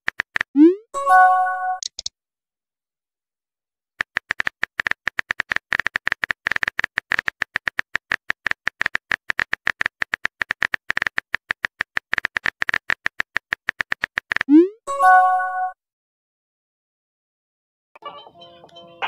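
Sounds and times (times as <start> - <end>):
phone keyboard typing clicks: 1.8 - 2.1, 4.0 - 14.5.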